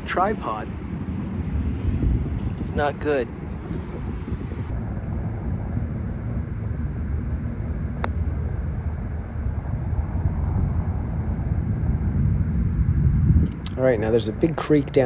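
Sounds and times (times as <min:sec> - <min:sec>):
low rumble: 0:00.0 - 0:14.4.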